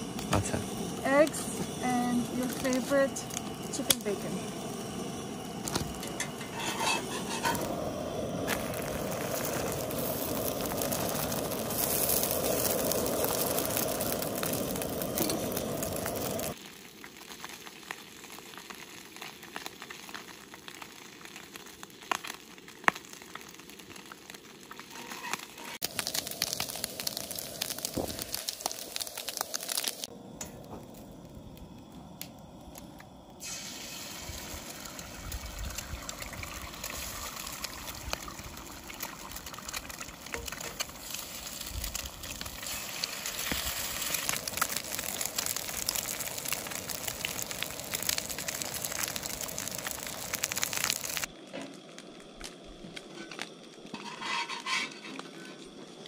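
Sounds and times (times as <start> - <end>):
food sizzling in a frying pan: 0.0 - 31.4, 33.4 - 51.7, 53.2 - 55.6
spatula scraping a pan: 6.3 - 7.7, 24.8 - 25.8, 53.9 - 55.6.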